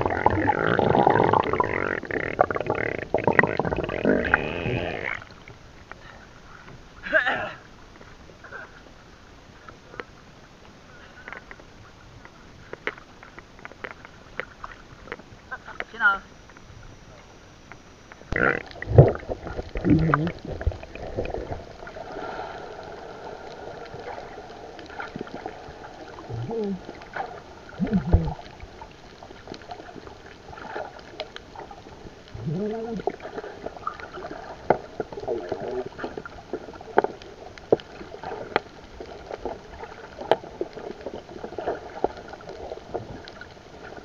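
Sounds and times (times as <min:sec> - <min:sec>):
gurgling bubbles: 0:00.0 - 0:05.6, 0:18.3 - 0:44.0
muffled underwater wash: 0:00.0 - 0:44.0
sharp clicks and crackles: 0:11.2 - 0:44.0.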